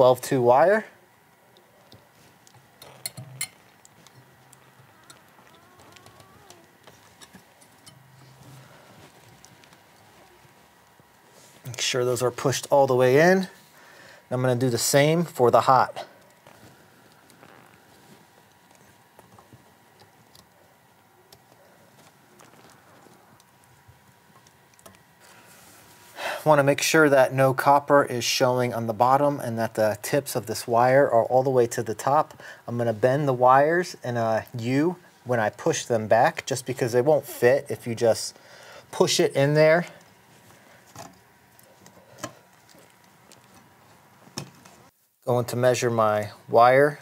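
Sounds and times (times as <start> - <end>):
rustling of wires: 0.0 - 26.2, 38.8 - 45.2
wires clicking into connectors: 1.6 - 8.4.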